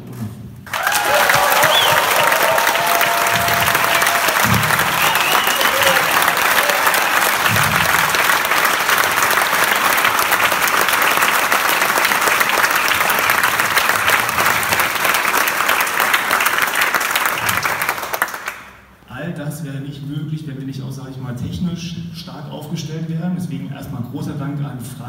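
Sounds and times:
crowd applauding: 0:00.7 - 0:18.9.

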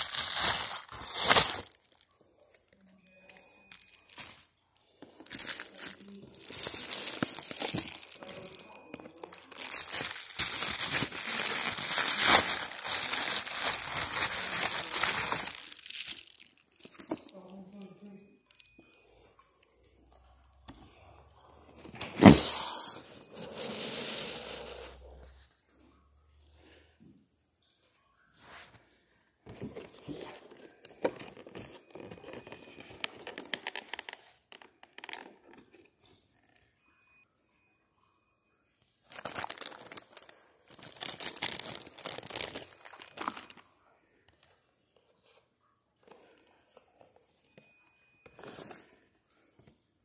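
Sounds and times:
plastic bag crinkling: 0:00.0 - 0:02.1, 0:03.6 - 0:04.4, 0:05.0 - 0:17.9, 0:21.8 - 0:25.2, 0:29.6 - 0:35.8, 0:39.1 - 0:43.6
rustling and scraping: 0:21.8 - 0:25.7.

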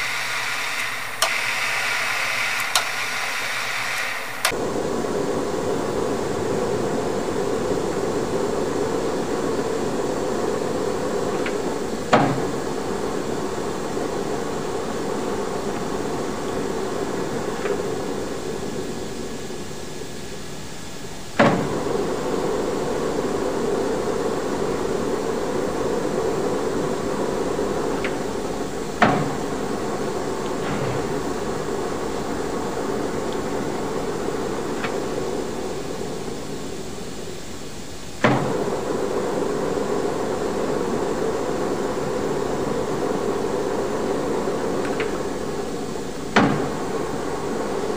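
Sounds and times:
metal lathe running: 0:00.0 - 0:20.0.

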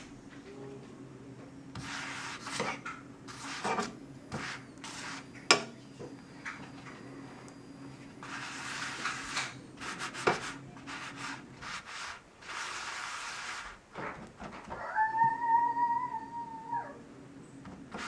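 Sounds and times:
flatbread scraping in frying pan: 0:01.8 - 0:05.3, 0:08.2 - 0:14.1.

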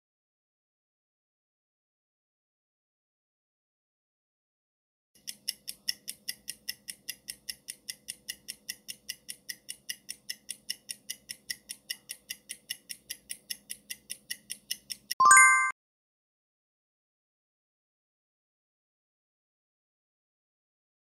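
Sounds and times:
clock ticking: 0:05.2 - 0:15.2
short loud multi-tone chime: 0:15.2 - 0:15.7.

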